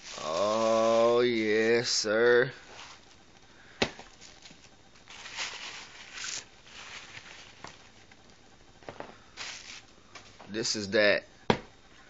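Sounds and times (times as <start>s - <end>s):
plastic bag crinkling: 0.0s - 2.0s, 4.0s - 8.2s.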